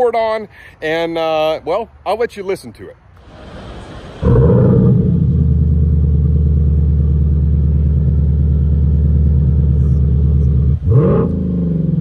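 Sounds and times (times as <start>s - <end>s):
synthetic engine sound from speakers: 3.2s - 12.0s.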